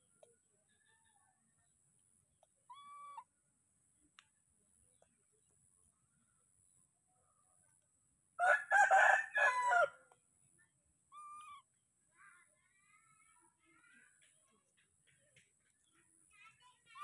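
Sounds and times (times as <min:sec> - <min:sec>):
faint bird chirps: 0:00.0 - 0:03.5, 0:10.6 - 0:17.0
rooster crowing: 0:08.4 - 0:10.0.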